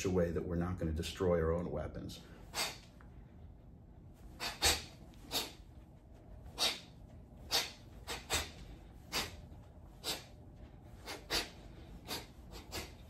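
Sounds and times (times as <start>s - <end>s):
sharp hissing exhales: 2.5s - 2.8s, 4.4s - 5.6s, 6.6s - 6.9s, 7.5s - 9.4s, 10.0s - 10.3s, 11.0s - 13.0s.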